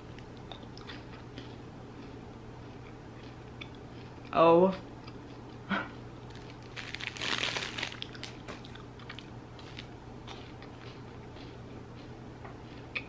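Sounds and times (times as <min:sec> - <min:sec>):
crunching and chewing: 0:00.0 - 0:13.0
plastic wrapper crinkling: 0:06.3 - 0:08.6.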